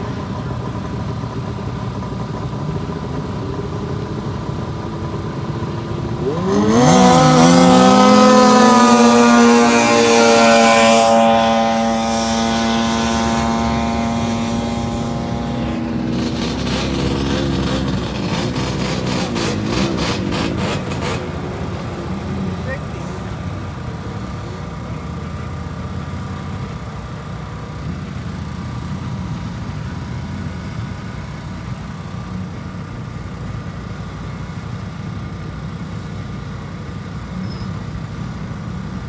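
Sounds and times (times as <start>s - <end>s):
snowmobile two-stroke engine revving: 4.9s - 32.8s.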